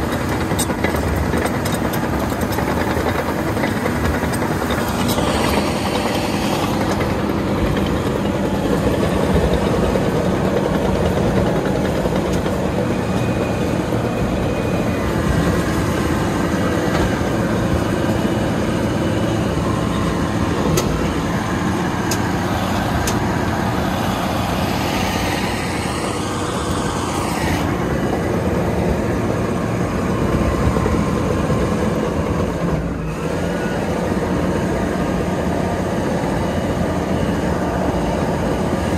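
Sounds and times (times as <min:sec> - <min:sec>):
diesel tractor engine running: 0:00.0 - 0:38.9.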